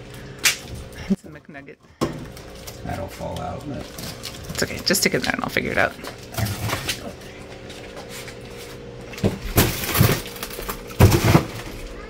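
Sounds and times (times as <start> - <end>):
steady hum: 0.0 - 12.0
frozen chickens clattering: 2.2 - 5.3, 6.1 - 12.0.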